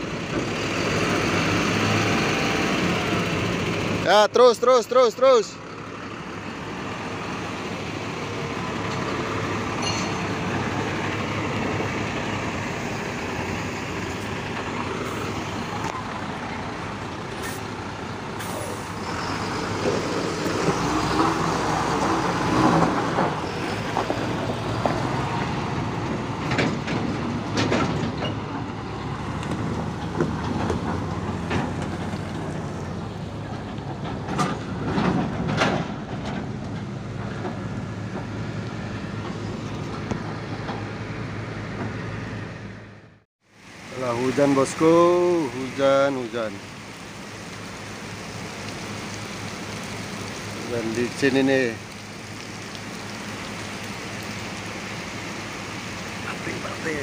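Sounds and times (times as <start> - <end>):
truck diesel engine running: 0.0 - 43.2
knocks and clanks: 26.0 - 28.7, 29.5 - 32.6, 33.4 - 38.4.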